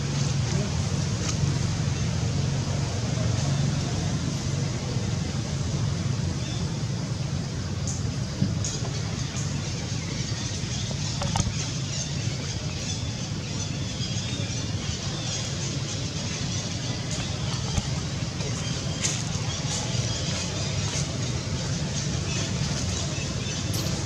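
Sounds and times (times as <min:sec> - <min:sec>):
low rumble with hiss: 0:00.0 - 0:24.0.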